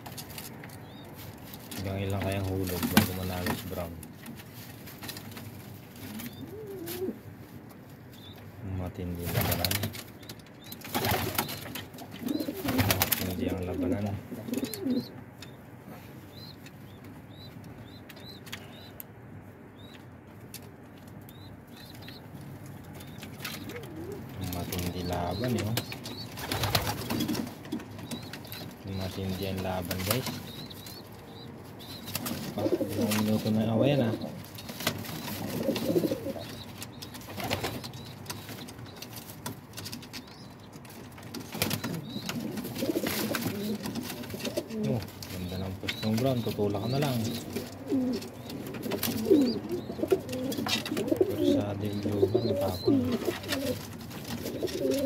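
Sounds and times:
pigeon cooing: 6.0s - 7.2s, 12.1s - 15.2s, 23.5s - 27.5s, 29.0s - 34.4s, 35.1s - 38.1s, 41.5s - 55.0s.

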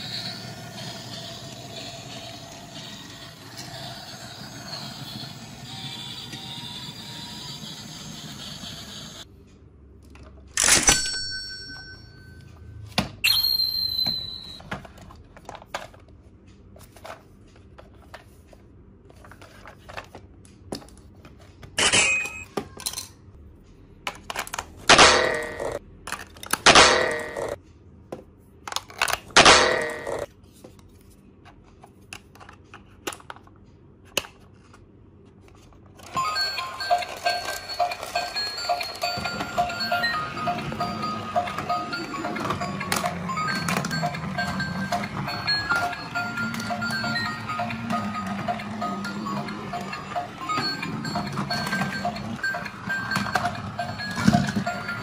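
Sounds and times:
plastic toys clicking and knocking: 24.0s - 27.6s, 28.6s - 30.3s, 36.0s - 55.0s.

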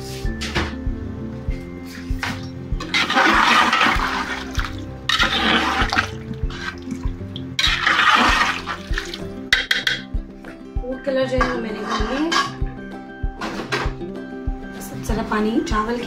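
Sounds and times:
quiet background music: 0.0s - 16.0s
pot boiling hard: 2.8s - 9.9s.

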